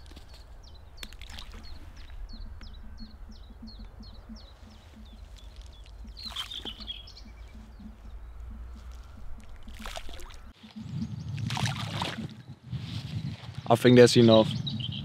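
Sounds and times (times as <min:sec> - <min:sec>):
low outdoor rumble: 0:00.0 - 0:10.6
small bird chirping: 0:00.0 - 0:11.6, 0:14.2 - 0:15.0
bait splashing into water: 0:01.0 - 0:01.7, 0:09.4 - 0:10.4.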